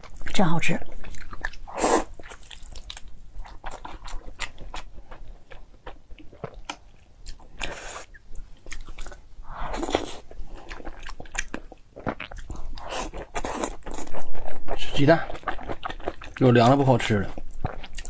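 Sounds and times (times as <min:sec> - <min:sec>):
chewing food: 0:00.0 - 0:18.0.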